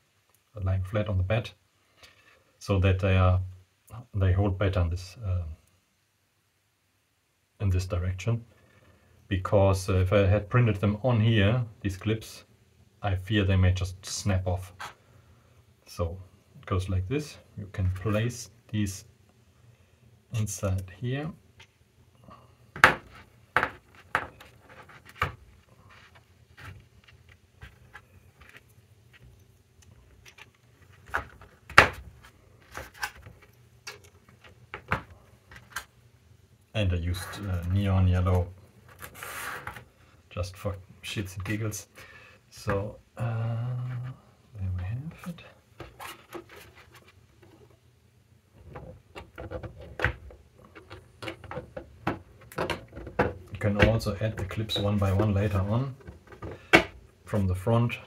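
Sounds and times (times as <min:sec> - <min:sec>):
plastic parts knocking and clicking: 0:22.7 - 0:25.5, 0:30.1 - 0:35.9, 0:48.6 - 0:55.4, 0:56.0 - 0:57.0.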